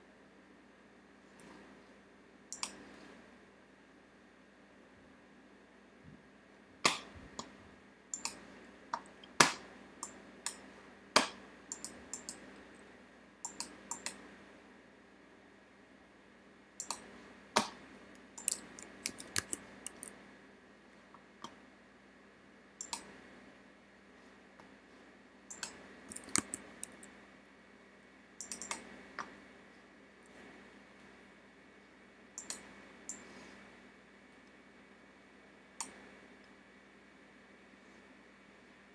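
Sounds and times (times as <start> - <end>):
mouse and keyboard clicks: 2.5 - 2.8, 8.2 - 8.4, 11.2 - 12.4, 13.4 - 14.2, 16.8 - 17.8, 18.4 - 20.2, 22.8 - 23.1, 25.5 - 27.1, 28.4 - 29.3, 32.4 - 33.2.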